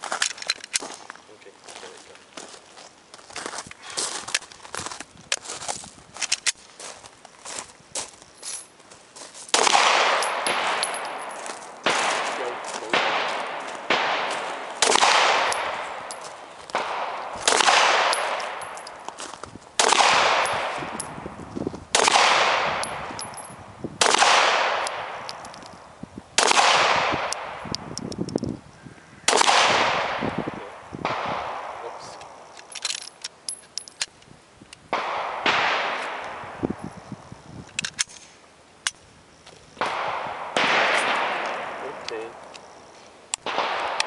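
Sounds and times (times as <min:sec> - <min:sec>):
pistol shots: 0:09.5 - 0:19.0, 0:19.8 - 0:21.2, 0:21.9 - 0:25.5, 0:26.4 - 0:27.7, 0:29.3 - 0:32.8, 0:34.9 - 0:36.6, 0:39.8 - 0:42.5, 0:43.4 - 0:44.0.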